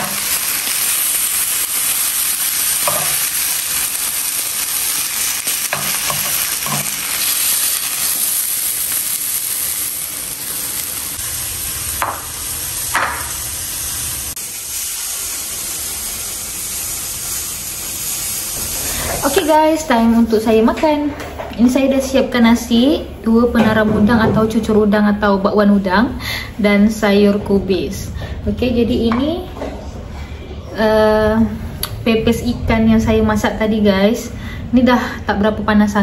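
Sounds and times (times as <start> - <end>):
fish sizzling in oil: 0.0 - 19.9.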